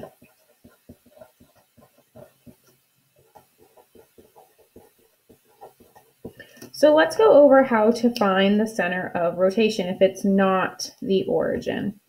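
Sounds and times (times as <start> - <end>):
pen scratching on paper: 0.0 - 7.4.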